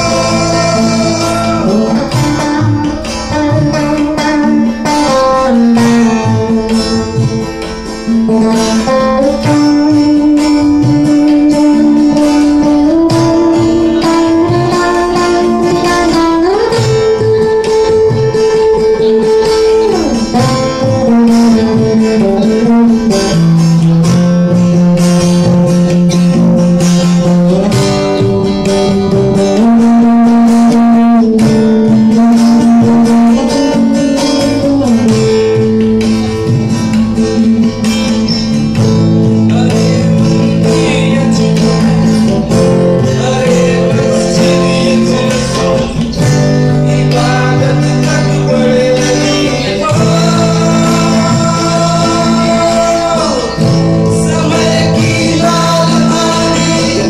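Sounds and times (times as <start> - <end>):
man singing: 0.0 - 23.4, 39.2 - 57.0
strummed acoustic guitars: 0.0 - 57.0
tabla: 0.0 - 57.0.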